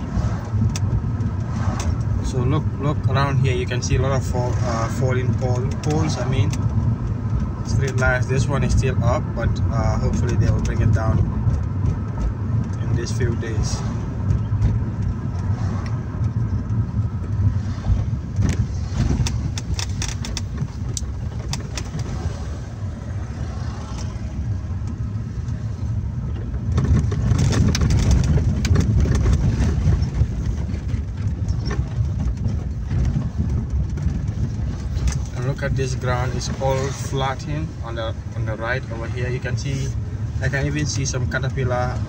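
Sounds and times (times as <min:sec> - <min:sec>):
car engine and tyre noise: 0:00.0 - 0:42.0
clicks and rattles: 0:18.3 - 0:22.2, 0:26.2 - 0:36.8.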